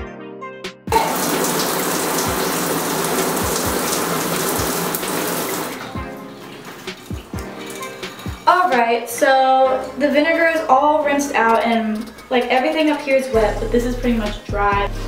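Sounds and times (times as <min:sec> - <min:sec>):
shower spray running: 0:00.9 - 0:09.0.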